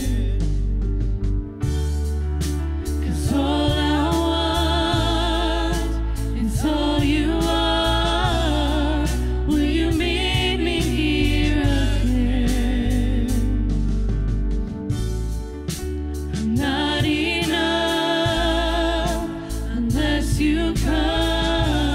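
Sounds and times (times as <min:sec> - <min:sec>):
drums: 0:00.0 - 0:21.9
keyboards: 0:00.0 - 0:21.9
sustained bass: 0:00.0 - 0:21.9
voices singing together: 0:03.0 - 0:13.6, 0:16.4 - 0:21.9.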